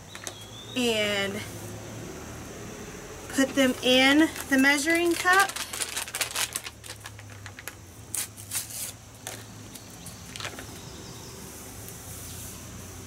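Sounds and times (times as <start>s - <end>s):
packets crinkling and crackling: 3.3s - 10.9s.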